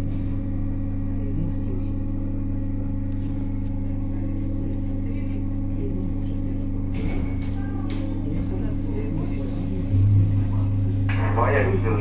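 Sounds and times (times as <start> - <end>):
electric train hum: 7.9 - 12.0.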